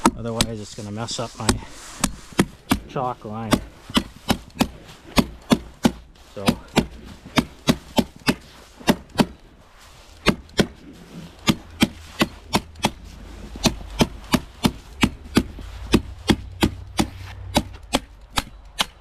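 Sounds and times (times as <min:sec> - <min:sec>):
hammer tacker striking staples: 0:01.5 - 0:09.4, 0:10.2 - 0:10.8, 0:11.4 - 0:13.0, 0:13.6 - 0:19.0.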